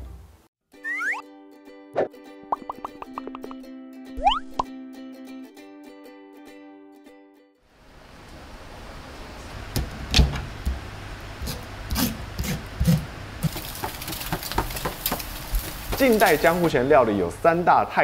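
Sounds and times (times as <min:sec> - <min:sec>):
fish grilling over charcoal: 0:12.6 - 0:16.8.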